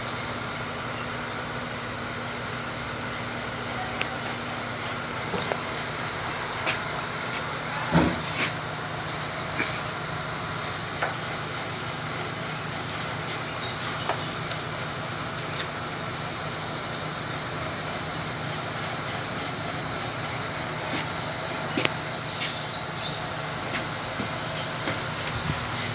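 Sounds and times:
sprayer pump humming and hissing: 0.0 - 25.9.

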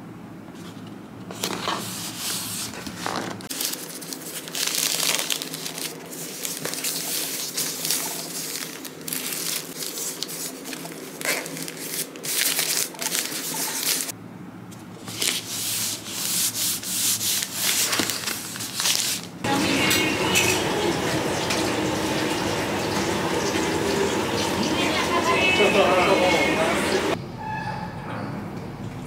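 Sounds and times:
plastic bags crinkling: 1.3 - 14.1, 15.0 - 19.5.

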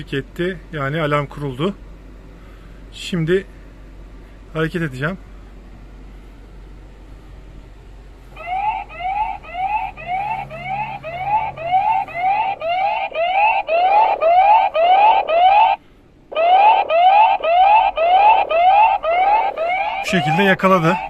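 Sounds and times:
rising whoop alarm siren: 8.4 - 21.0.

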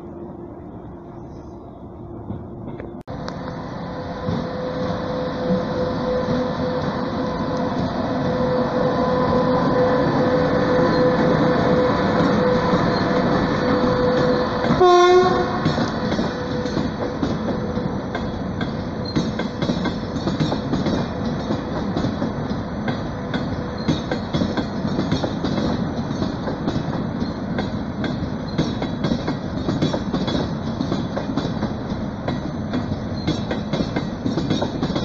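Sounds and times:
train wheels rumbling: 0.0 - 35.0
train horn blast: 13.6 - 15.9.

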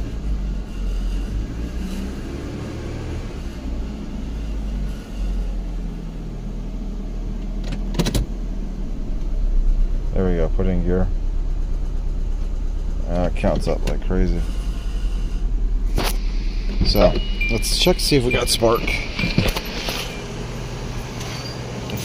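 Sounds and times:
car engine idling rough: 0.0 - 2.6, 3.2 - 22.0.

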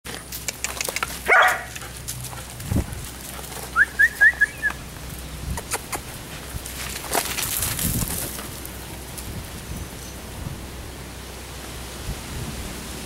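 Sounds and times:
dog barking: 1.2 - 1.8.

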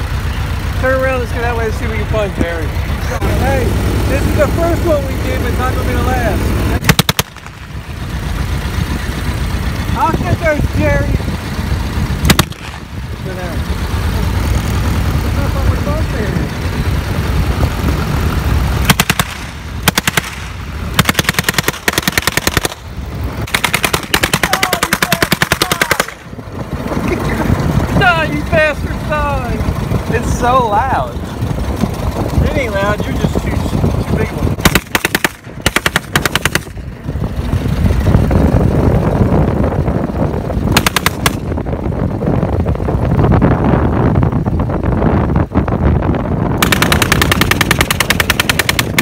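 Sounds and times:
car driving rumble: 0.0 - 49.0
machine gun bursts: 18.8 - 20.4, 21.0 - 22.8, 23.5 - 26.2, 34.6 - 36.7, 40.8 - 41.4, 46.6 - 49.0.

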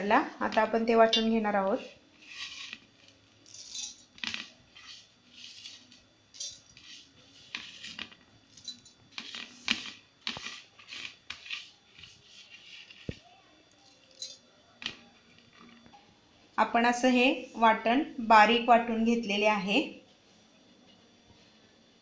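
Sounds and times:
utensils scraping: 2.2 - 2.9, 3.5 - 13.2
clinks of utensils and steel vessels: 14.1 - 14.4.

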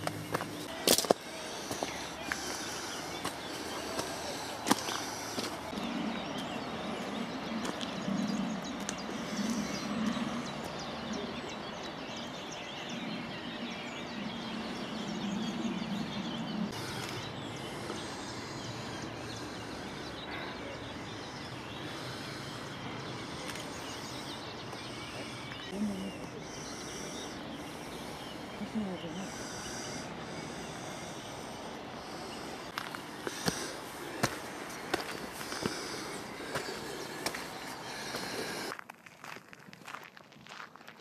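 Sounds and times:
songbirds chirping: 0.0 - 38.7.

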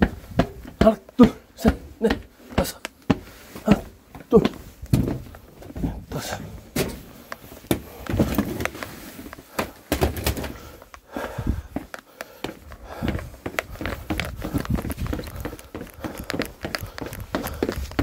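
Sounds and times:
footsteps on concrete: 0.0 - 9.9, 10.5 - 18.0
irregular thumps and clicks: 11.7 - 18.0.

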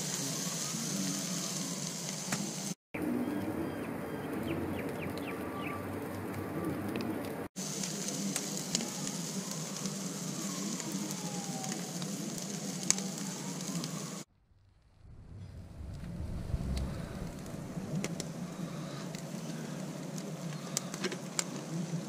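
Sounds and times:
seafood sizzling on a grill: 0.0 - 2.8, 7.6 - 14.3, 17.3 - 22.0.

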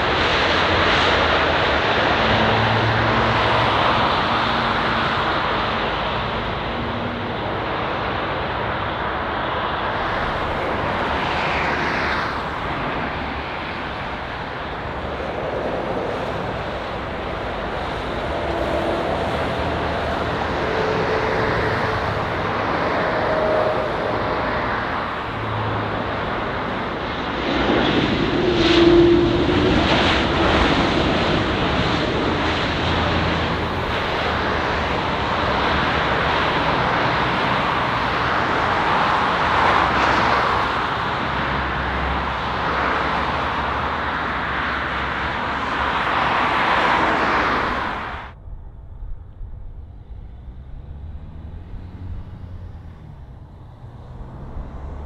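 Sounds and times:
faint engine whine: 0.0 - 55.0
jet engines roaring: 0.0 - 55.0.

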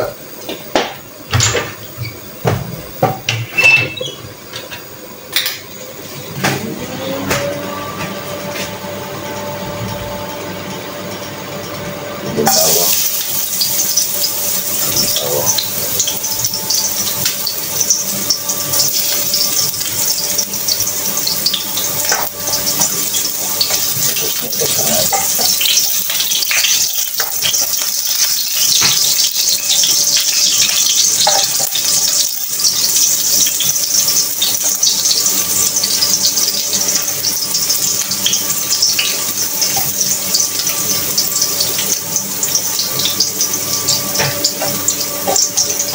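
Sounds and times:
tap running into sink: 0.4 - 5.6
dishes clinking: 0.5 - 5.7, 31.2 - 31.8.

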